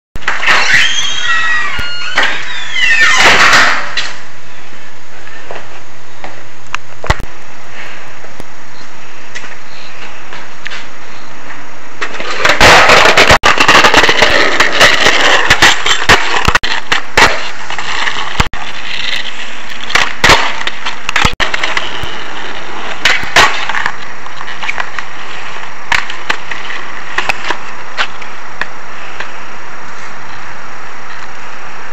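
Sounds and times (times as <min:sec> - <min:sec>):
skateboard wheels rolling: 0:00.2 - 0:07.2, 0:09.1 - 0:31.9
skateboard clacking on ground: 0:11.5 - 0:29.3.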